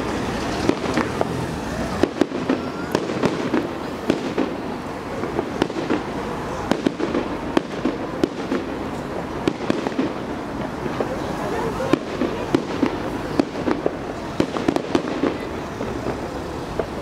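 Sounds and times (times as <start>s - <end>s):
fireworks bursting with sharp bangs: 0.0s - 17.0s.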